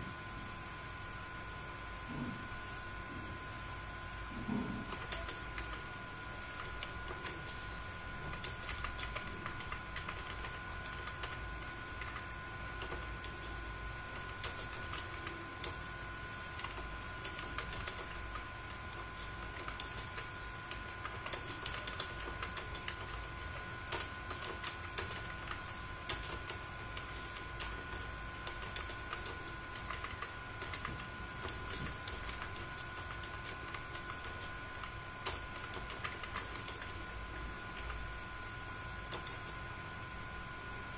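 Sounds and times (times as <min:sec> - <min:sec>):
faint high hum: 0:00.0 - 0:40.9
keyboard typing clicks: 0:04.6 - 0:05.8, 0:08.2 - 0:37.1, 0:39.1 - 0:39.6.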